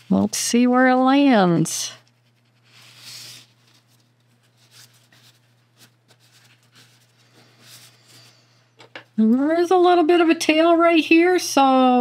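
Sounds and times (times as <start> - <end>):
hands rustling fabric: 2.1 - 8.5.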